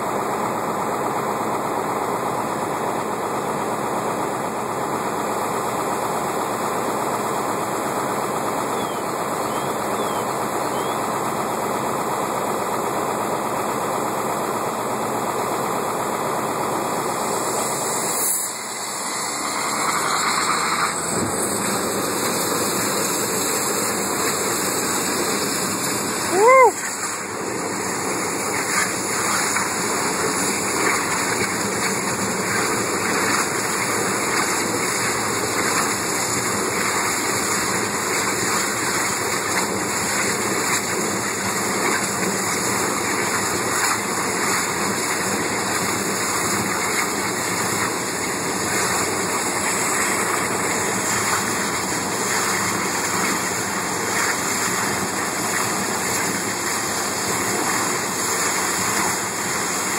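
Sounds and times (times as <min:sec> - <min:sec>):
water hose spraying: 0:00.2 - 0:59.9
gas flame jet rushing: 0:17.2 - 0:26.2.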